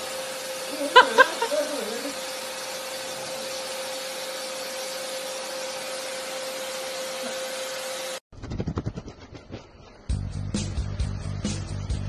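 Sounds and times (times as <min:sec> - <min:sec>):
vacuum cleaner running: 0:00.0 - 0:08.2.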